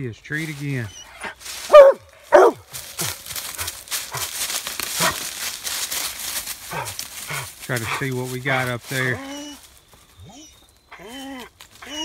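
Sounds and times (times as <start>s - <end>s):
brush and twigs rustling: 0.0s - 12.0s
hound barking: 0.9s - 4.3s, 5.0s - 5.3s, 6.7s - 8.1s.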